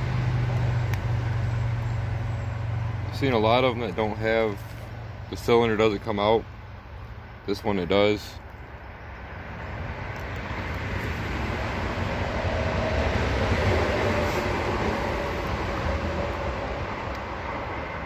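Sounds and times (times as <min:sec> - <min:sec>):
vehicle passing by: 0:00.0 - 0:07.4, 0:09.0 - 0:18.0.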